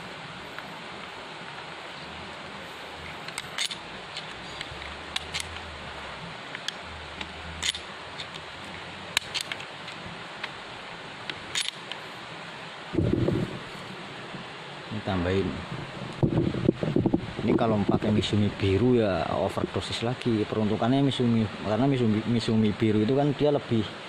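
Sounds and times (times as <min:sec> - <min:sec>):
steady background hiss: 0:00.0 - 0:24.0
hands handling gear clicks: 0:03.2 - 0:05.7, 0:06.5 - 0:08.4, 0:09.2 - 0:10.6, 0:11.3 - 0:12.0
faint low rumble: 0:12.9 - 0:14.5.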